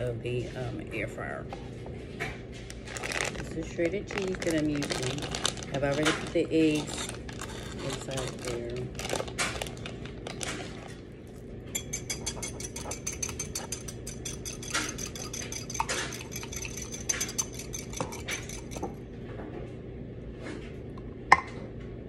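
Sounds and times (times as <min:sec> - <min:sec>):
whisk clinking against mug: 0:11.7 - 0:19.0.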